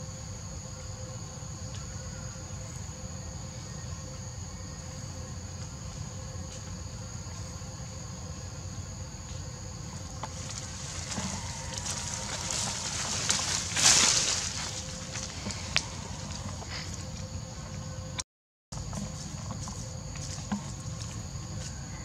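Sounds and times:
insects droning: 0.0s - 22.0s
leaves and undergrowth rustling: 9.8s - 17.8s.

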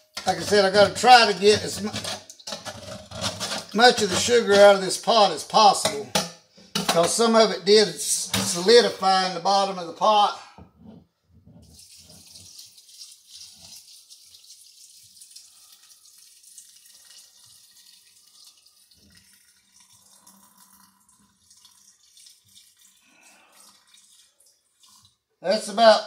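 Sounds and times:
water trickling into a jar: 0.2s - 4.1s, 11.5s - 25.4s.

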